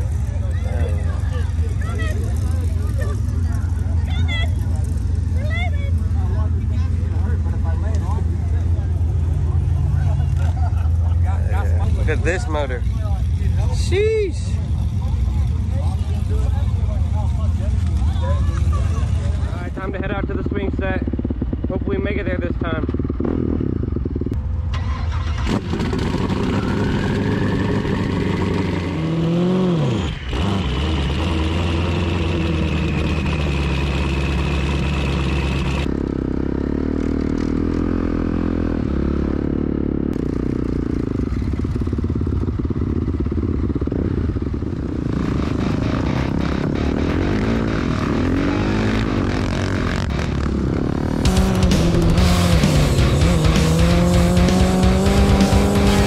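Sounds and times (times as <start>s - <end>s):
dirt bike engine revving: 19.6s - 56.0s.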